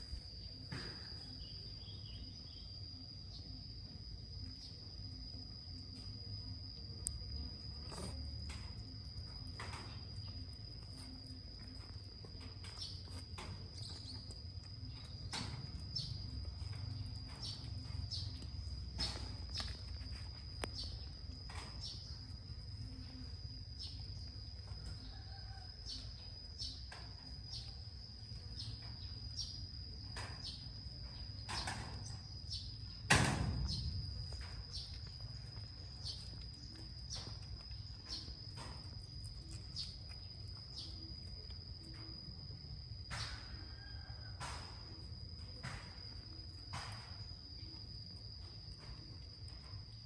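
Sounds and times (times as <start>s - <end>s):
cat chewing rice: 4.3s - 25.0s, 34.0s - 42.8s.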